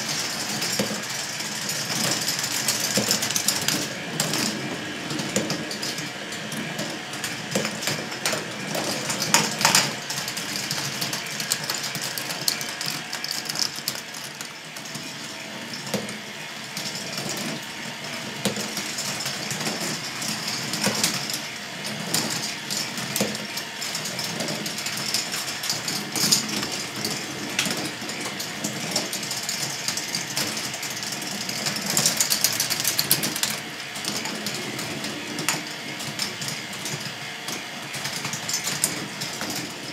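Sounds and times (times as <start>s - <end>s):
plastic balls clattering on tracks: 18.3s - 39.9s.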